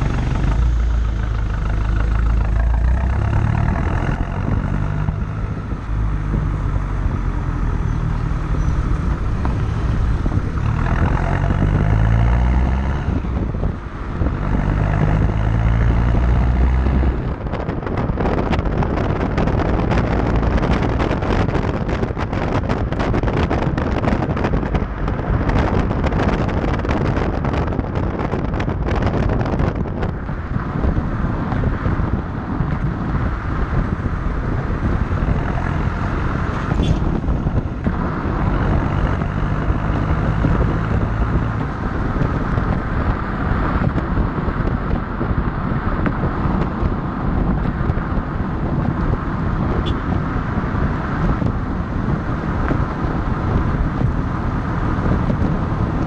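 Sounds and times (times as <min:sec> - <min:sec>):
diesel car exhaust note: 0:00.0 - 0:30.1
tyre and wind noise: 0:00.0 - 0:56.0
wind buffeting on microphone: 0:00.0 - 0:56.0.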